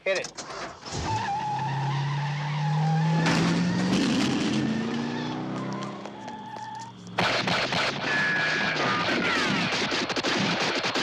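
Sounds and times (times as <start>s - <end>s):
car engine accelerating: 0.9s - 8.6s.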